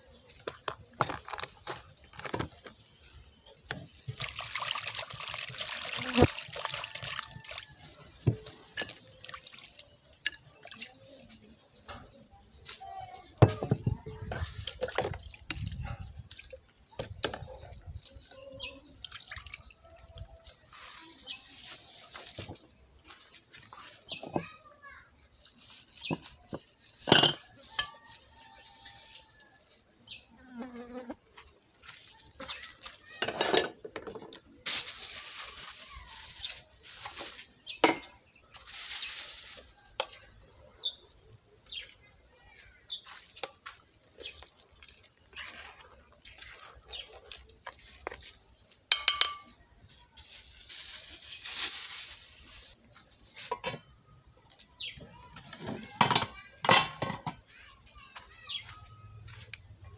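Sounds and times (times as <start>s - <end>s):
pots and utensils knocking: 27.0s - 28.0s, 48.9s - 49.5s, 56.0s - 57.4s.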